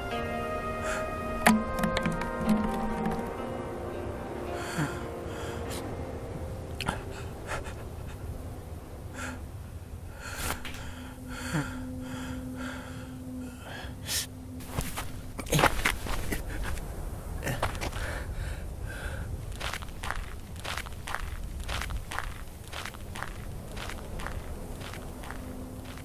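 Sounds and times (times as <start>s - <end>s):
man gasping and sobbing: 4.6s - 5.9s, 10.2s - 14.0s
movement sounds: 14.6s - 18.2s, 19.2s - 26.0s.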